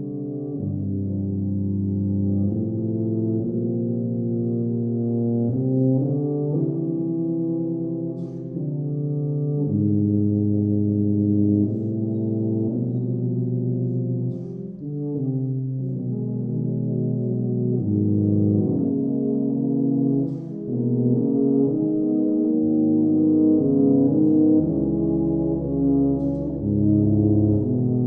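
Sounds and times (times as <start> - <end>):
low brass chords: 0.0 - 28.0.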